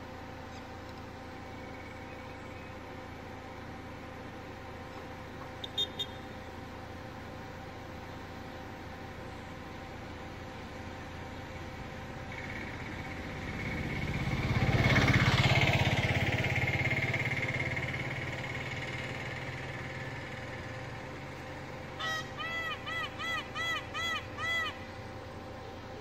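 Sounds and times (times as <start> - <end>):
low rumble with high whine: 0.0 - 26.0
peafowl honking calls: 21.9 - 25.3.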